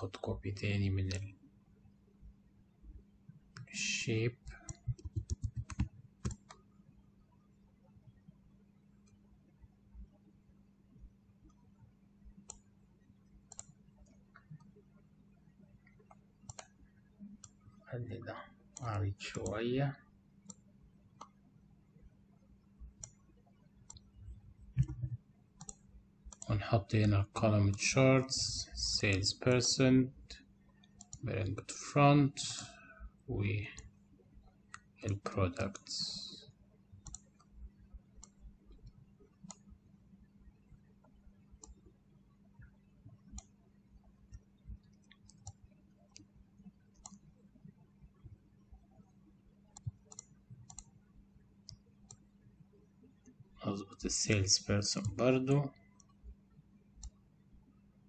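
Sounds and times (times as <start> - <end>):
faint steady hum: 0.0 - 58.0
computer mouse clicking: 4.4 - 6.7, 12.4 - 12.7, 13.4 - 14.8, 15.8 - 16.8, 17.4 - 17.7, 20.4 - 21.4, 22.9 - 24.1, 24.8 - 27.9, 30.7 - 31.2, 34.6 - 35.9, 37.0 - 39.8, 41.0 - 42.0, 42.6 - 47.4, 48.9 - 51.0, 51.6 - 52.4, 55.0 - 55.2, 57.0 - 57.2.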